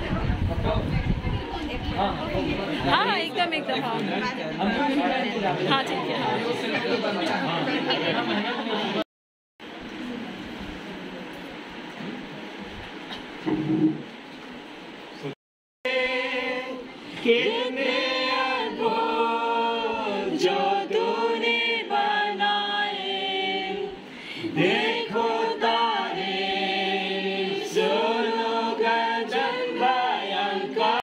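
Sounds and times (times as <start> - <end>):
group singing a hymn: 15.9 - 31.0.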